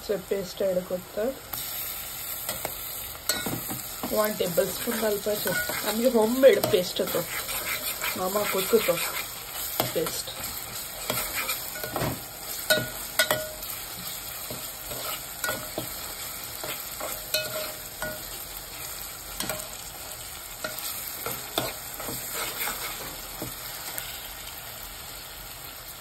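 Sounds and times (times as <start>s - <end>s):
food sizzling in oil: 0.0s - 26.0s
metal spoon scraping a pot: 4.7s - 12.1s, 14.4s - 18.4s, 20.6s - 23.2s.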